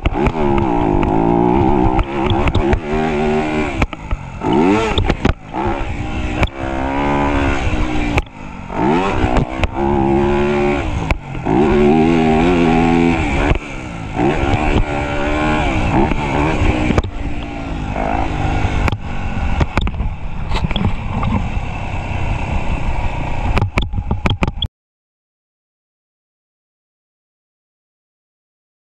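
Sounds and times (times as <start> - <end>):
knocks and clatter from bike: 0.0 - 3.1, 18.6 - 21.5, 23.4 - 24.7
dirt bike engine revving: 0.0 - 24.6.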